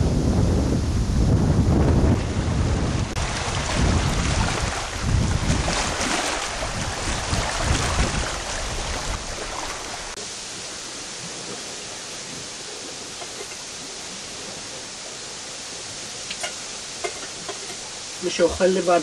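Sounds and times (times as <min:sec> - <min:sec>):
wind buffeting microphone: 0:00.0 - 0:10.2
choppy water waves: 0:00.0 - 0:19.0.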